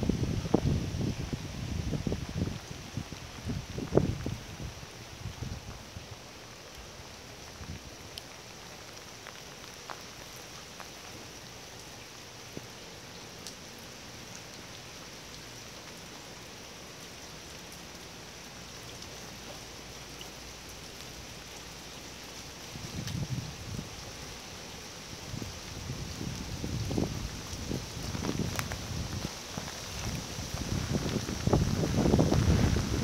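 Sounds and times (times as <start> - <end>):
steady rain falling: 0.0 - 33.0
single raindrop ticks: 12.5 - 14.6.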